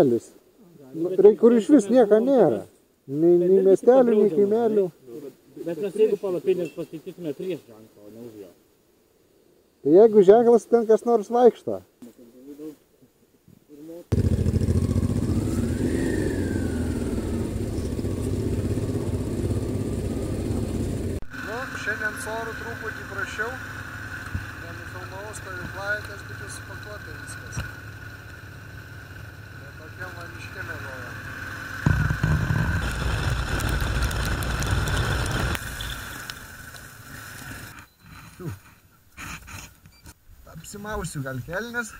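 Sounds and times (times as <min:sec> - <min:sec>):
motorcycle engine running: 0:14.1 - 0:37.2
faint high whine: 0:14.1 - 0:38.6
wind rush on microphone: 0:31.9 - 0:35.7.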